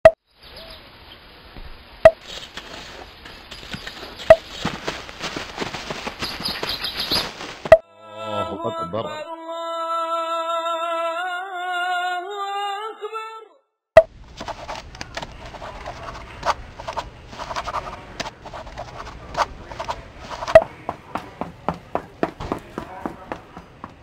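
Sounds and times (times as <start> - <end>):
person humming a note: 7.8 - 11.4.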